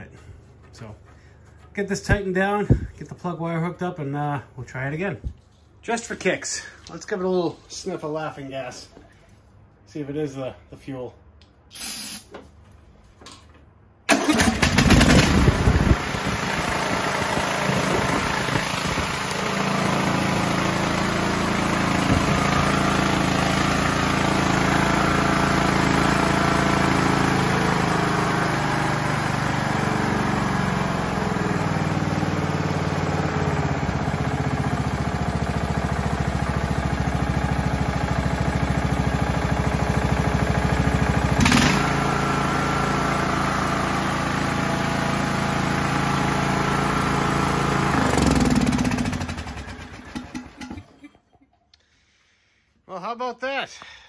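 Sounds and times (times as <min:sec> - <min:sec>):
mower engine cranking and running: 0:14.1 - 0:51.1.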